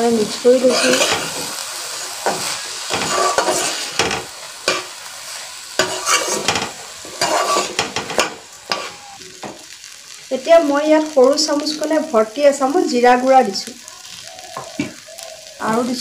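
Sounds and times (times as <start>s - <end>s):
light sizzle: 0.0s - 16.0s
metal ladle scraping a pan: 0.6s - 4.9s, 5.8s - 9.2s.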